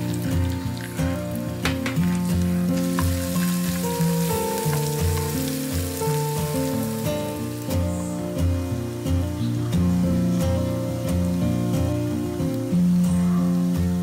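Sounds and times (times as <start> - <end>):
background music with held notes: 0.0 - 14.0
ginger and garlic sizzling in oil: 0.0 - 14.0.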